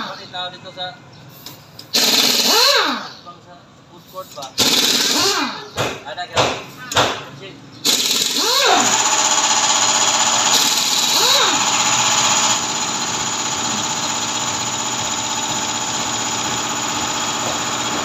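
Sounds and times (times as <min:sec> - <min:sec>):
pneumatic impact wrench: 0:01.3 - 0:03.2, 0:04.4 - 0:06.0, 0:07.8 - 0:18.0
engine drone: 0:08.1 - 0:18.0.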